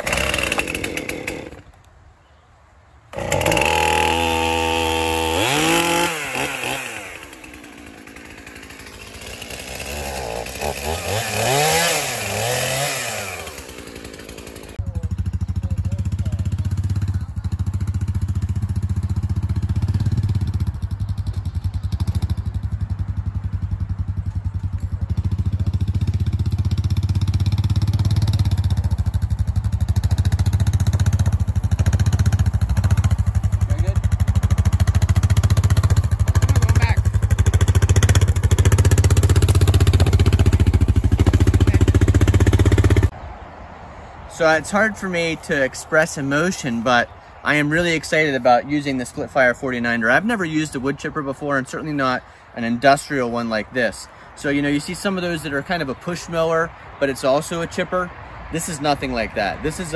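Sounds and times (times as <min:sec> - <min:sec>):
quad bike engine running: 0:00.0 - 0:01.6, 0:03.1 - 0:43.1
chainsaw revving: 0:00.0 - 0:01.8, 0:03.1 - 0:23.1, 0:24.6 - 0:43.1.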